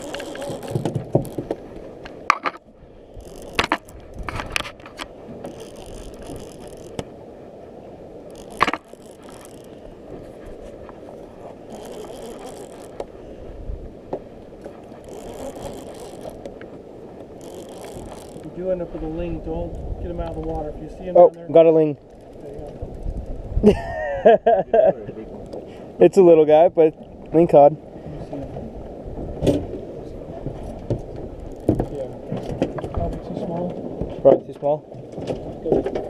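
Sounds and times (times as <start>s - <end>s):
fishing reel clicks: 0.0s - 1.4s, 3.2s - 4.0s, 5.5s - 7.0s, 8.3s - 9.8s, 11.7s - 13.0s, 15.0s - 16.5s, 17.4s - 18.5s
fishing reel spool whirring: 0.0s - 1.6s, 2.2s - 7.2s, 8.2s - 13.4s, 14.7s - 21.2s, 21.9s - 23.7s, 31.4s - 32.1s.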